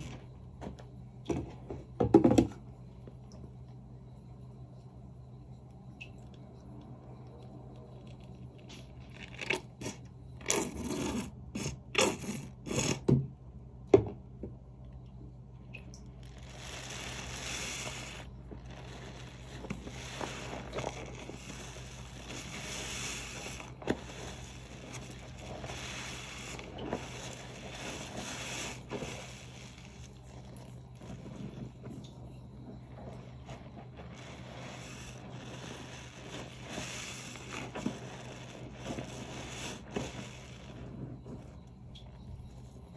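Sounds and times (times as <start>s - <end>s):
sponge scrubbing strokes: 16.0s - 42.7s.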